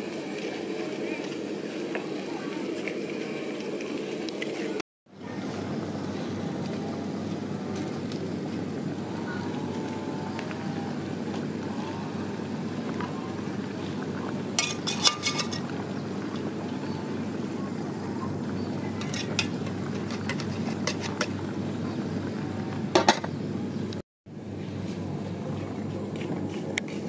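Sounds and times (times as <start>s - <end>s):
utensils clinking on metal pot: 14.6s - 15.8s, 19.0s - 21.4s.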